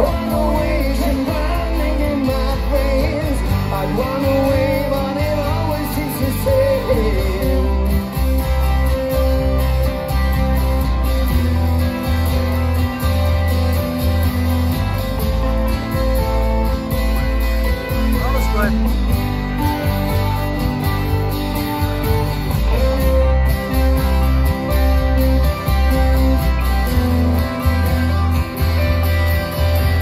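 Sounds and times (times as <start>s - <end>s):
person singing lead vocal: 0.0s - 8.6s
strummed acoustic guitars: 0.0s - 30.0s
upright double bass: 0.0s - 30.0s.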